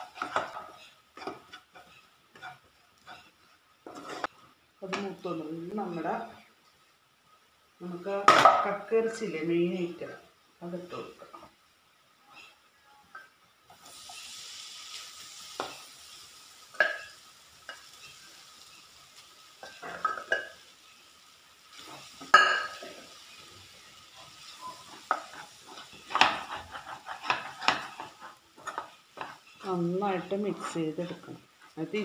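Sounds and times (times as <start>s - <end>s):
wooden spatula scraping pan: 0.0s - 4.3s, 24.1s - 32.0s
clam meat sizzling in a pan: 0.0s - 32.0s.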